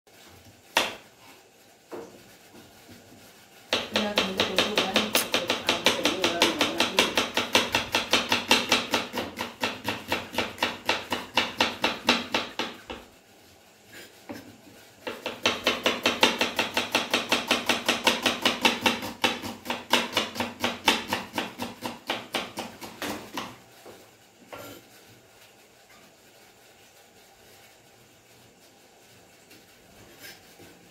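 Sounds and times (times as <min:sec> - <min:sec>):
knife chopping on wooden board: 0:00.7 - 0:01.0, 0:03.7 - 0:13.1, 0:15.0 - 0:23.6.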